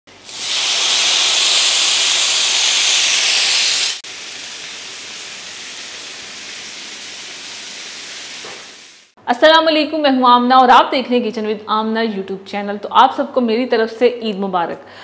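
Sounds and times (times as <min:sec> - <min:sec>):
food sizzling on hot plate: 0:00.1 - 0:09.2.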